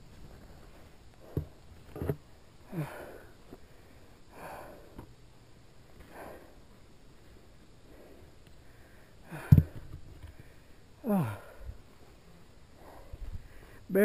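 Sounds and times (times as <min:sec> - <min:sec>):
person breathing hard: 0:02.6 - 0:05.1, 0:06.0 - 0:13.9
person grunting: 0:11.0 - 0:11.6.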